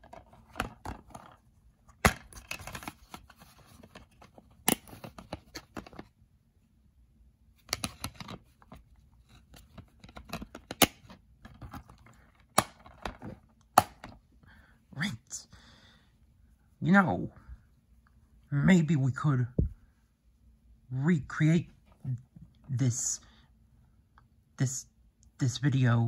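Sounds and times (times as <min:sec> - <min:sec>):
plastic case clicks and snaps: 0:04.6 - 0:06.0, 0:10.0 - 0:11.8, 0:12.5 - 0:14.2.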